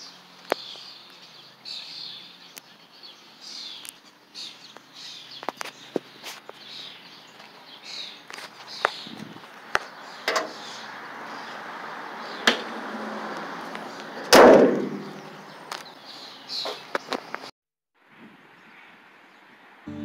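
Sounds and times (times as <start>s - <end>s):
loud thump: 14.3s - 15.1s.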